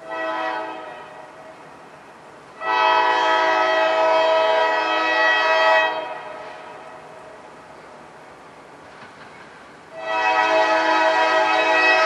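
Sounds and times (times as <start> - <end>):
locomotive air horn blast: 0.0 - 1.4, 2.6 - 7.0, 9.9 - 12.0.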